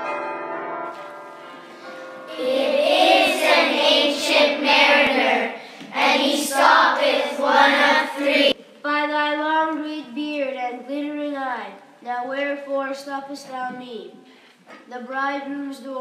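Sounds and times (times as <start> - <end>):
children singing in unison: 2.3 - 8.6.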